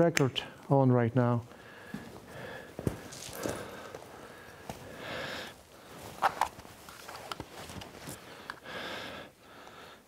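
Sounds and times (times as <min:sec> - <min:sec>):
man breathing: 0:01.5 - 0:06.2, 0:08.0 - 0:10.0.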